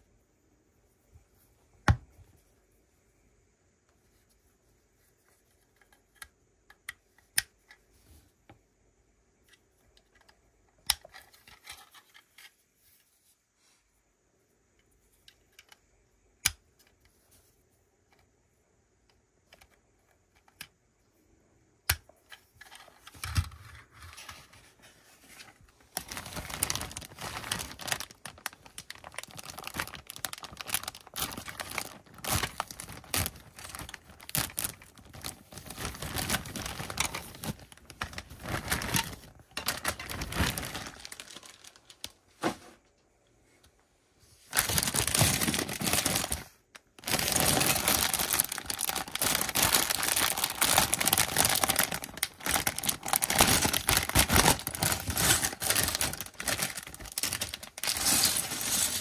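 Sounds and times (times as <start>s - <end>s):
plastic bag crinkling: 25.8s - 42.2s, 44.5s - 59.0s.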